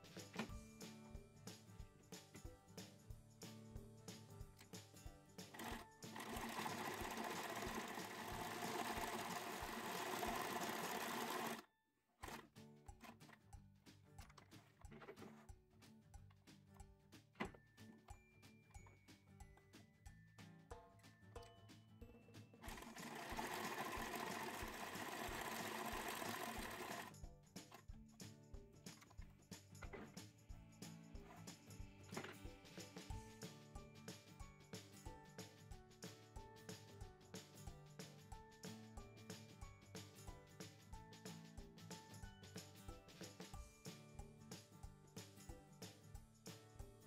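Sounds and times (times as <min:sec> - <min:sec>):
plucked background music: 0:00.0 - 0:11.6, 0:12.2 - 0:46.9
electric sewing machine stitching: 0:05.5 - 0:12.5, 0:22.6 - 0:27.2.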